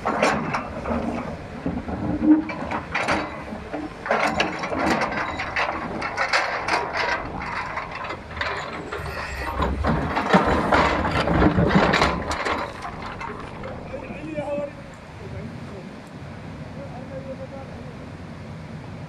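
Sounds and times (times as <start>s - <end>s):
metal clanking: 0.0s - 15.0s
excavator engine rumble: 0.0s - 19.0s
stones scraping and clattering: 2.0s - 13.9s.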